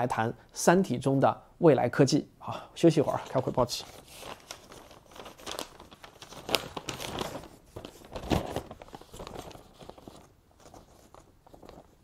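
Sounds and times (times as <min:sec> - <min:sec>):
newspaper rustling and crackling: 0:03.0 - 0:12.0.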